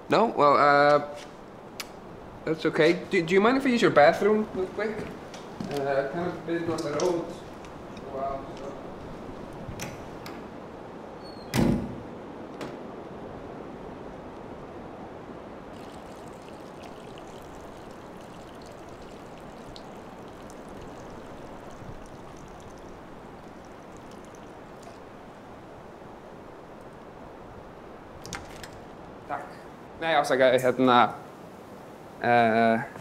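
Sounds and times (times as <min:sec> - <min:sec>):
door shutting with heavy thud: 0:11.4 - 0:12.0.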